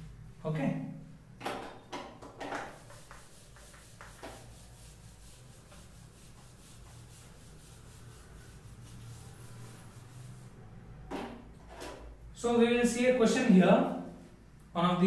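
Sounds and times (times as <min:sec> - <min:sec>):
eraser wiping whiteboard: 0:02.5 - 0:11.0.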